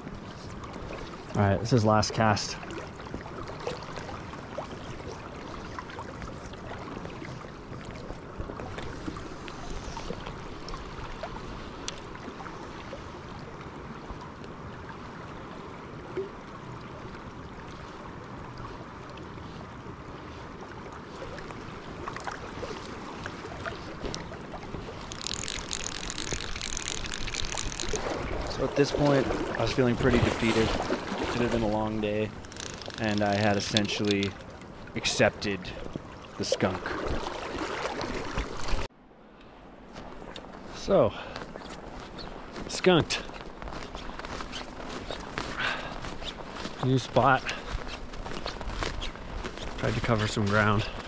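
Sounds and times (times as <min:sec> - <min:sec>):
river current rushing: 0:21.1 - 0:38.9
fishing reel click drag ratcheting: 0:25.1 - 0:28.0, 0:32.4 - 0:34.3.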